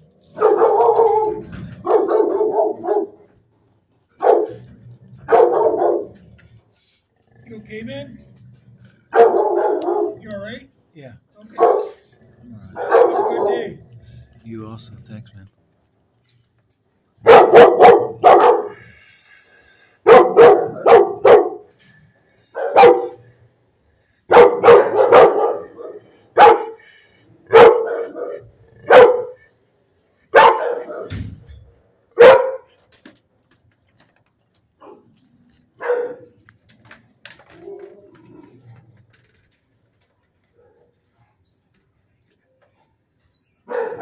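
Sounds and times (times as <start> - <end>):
dog barking loudly: 0.3 - 3.3, 4.2 - 4.6, 5.2 - 6.2, 9.1 - 10.2, 11.5 - 12.0, 12.8 - 13.8, 17.2 - 18.8, 20.0 - 21.7, 22.5 - 23.3, 24.3 - 26.8, 27.4 - 29.4, 30.3 - 31.1, 32.1 - 32.8, 35.8 - 36.4, 43.7 - 44.0.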